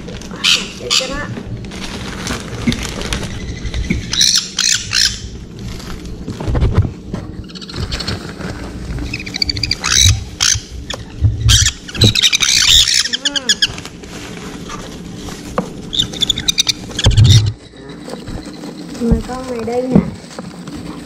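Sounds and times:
chicks squawking: 0.3 - 1.3, 3.1 - 5.4, 7.4 - 14.0, 15.8 - 19.8.

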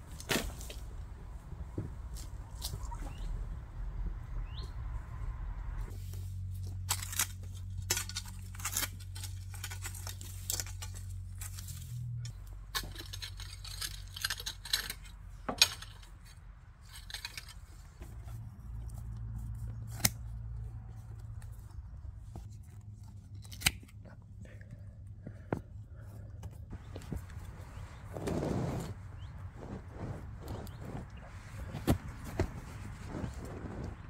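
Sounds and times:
pruning snips cutting rubber: 19.5 - 20.6
shovel and rake scraping soil: 27.0 - 34.0.

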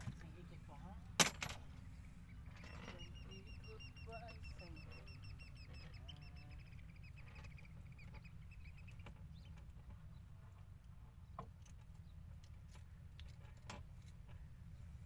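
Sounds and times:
steady low hum: 0.0 - 15.0
bird chirping rapidly: 1.9 - 10.3.

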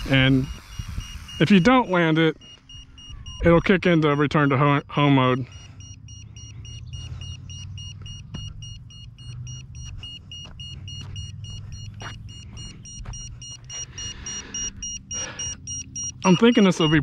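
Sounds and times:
rapid high-pitched beeping: 0.0 - 17.0
footsteps on asphalt: 6.5 - 15.4.

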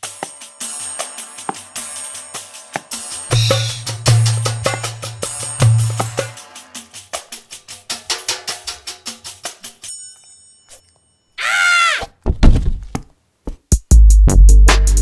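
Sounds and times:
light cartoon music with ticking beat: 0.0 - 10.3, 13.7 - 15.0
wavering high cry: 11.4 - 12.1
heavy thuds: 12.2 - 13.0.

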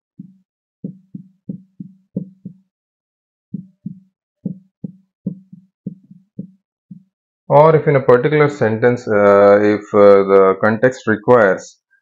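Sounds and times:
marker pen on whiteboard: 0.2 - 2.7, 3.6 - 7.1.

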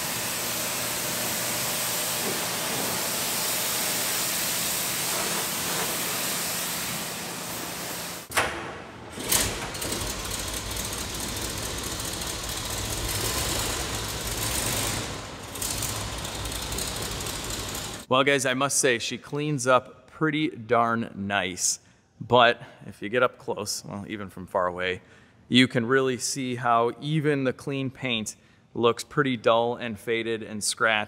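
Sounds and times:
pressure washer spraying water: 0.0 - 8.3, 10.0 - 18.1
pump motor humming: 0.0 - 8.4.

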